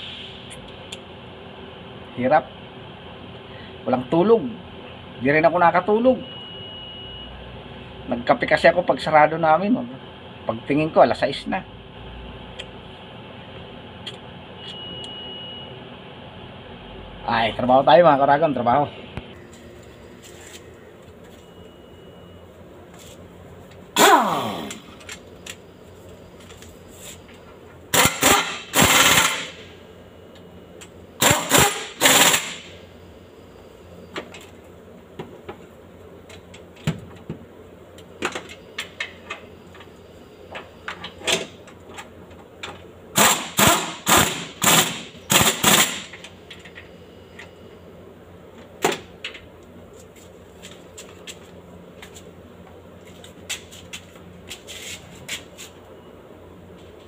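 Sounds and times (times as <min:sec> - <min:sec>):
pneumatic impact wrench rattling: 0:27.9 - 0:29.7, 0:31.2 - 0:32.8, 0:43.1 - 0:46.2
tool spinning down whine: 0:27.9 - 0:29.8.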